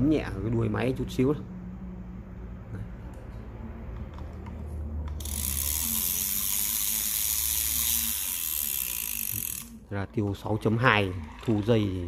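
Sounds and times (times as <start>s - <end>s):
fishing reel gears whirring: 5.2s - 9.8s.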